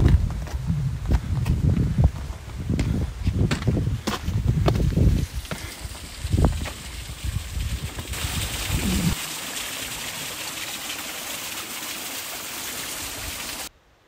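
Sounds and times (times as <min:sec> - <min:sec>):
microphone rumbling: 0:00.0 - 0:09.2
stream splashing over rocks: 0:05.3 - 0:13.7.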